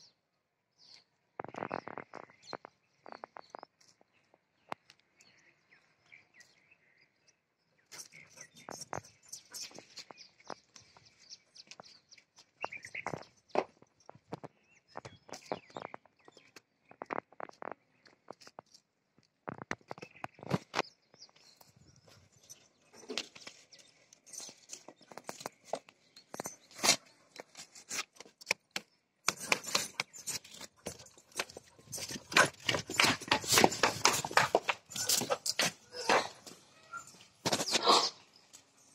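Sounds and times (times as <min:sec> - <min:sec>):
dog clicking on concrete: 0:27.3 - 0:36.5.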